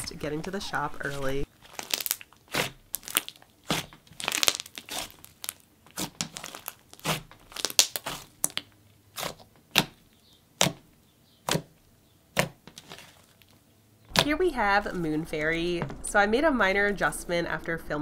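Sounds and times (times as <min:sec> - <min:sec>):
slime squeezed by hand: 0:01.6 - 0:09.9.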